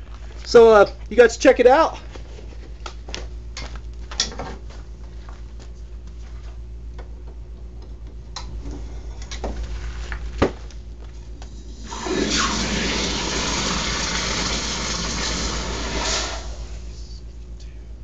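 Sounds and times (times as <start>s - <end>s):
hot blade hissing in water: 11.8s - 16.8s.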